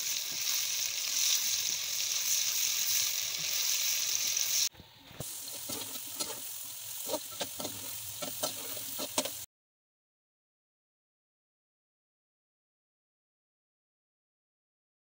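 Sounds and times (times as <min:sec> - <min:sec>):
onions sizzling in hot oil: 0:00.0 - 0:09.5
potato sticks frying in oil: 0:00.0 - 0:09.5
metal skimmer scraping pan: 0:05.2 - 0:09.4.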